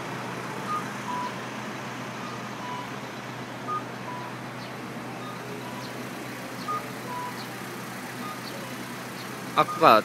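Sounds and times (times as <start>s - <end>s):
street traffic: 0.0s - 10.0s
two-note electronic beep: 9.6s - 10.0s.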